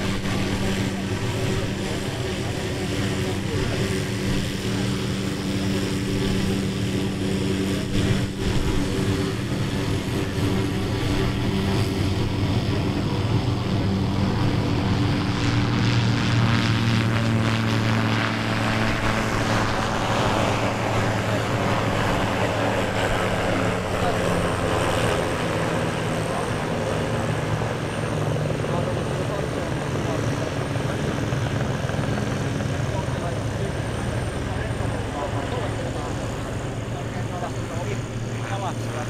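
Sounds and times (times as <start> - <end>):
propeller aircraft engine drone: 0.0 - 39.0.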